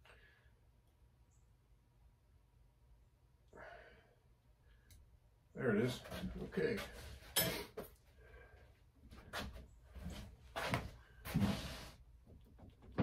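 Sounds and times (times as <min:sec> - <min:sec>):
metal tools clinking: 0:07.3 - 0:07.7.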